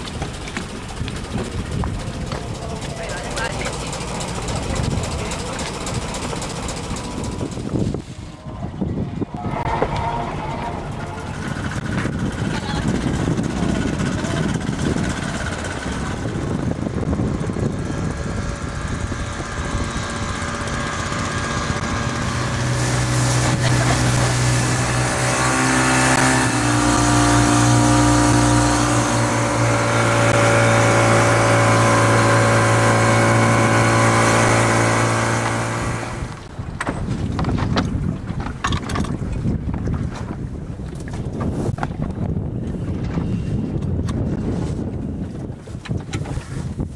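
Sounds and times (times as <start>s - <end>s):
water rushing: 0.0s - 8.5s, 19.4s - 36.5s
outboard motor: 0.0s - 46.9s
wind: 0.0s - 46.9s.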